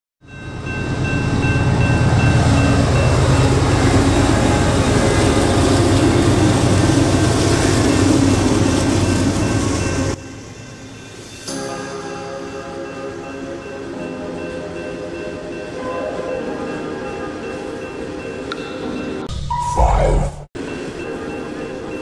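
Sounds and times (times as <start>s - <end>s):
diesel locomotives passing: 0.2s - 19.3s, 20.6s - 22.0s.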